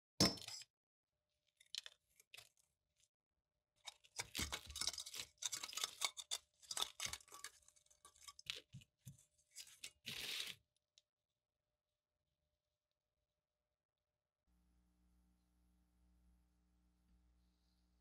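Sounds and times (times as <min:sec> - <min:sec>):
rusty metal scraping and clinking: 0:04.5 - 0:08.6.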